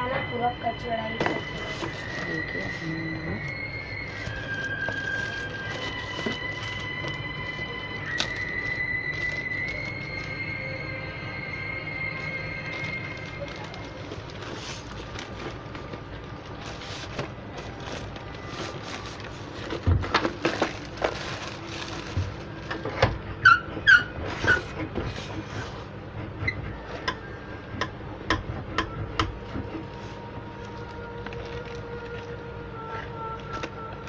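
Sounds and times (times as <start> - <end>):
plastic mailer bag crinkling: 3.9 - 10.5, 12.2 - 23.0, 29.9 - 32.5.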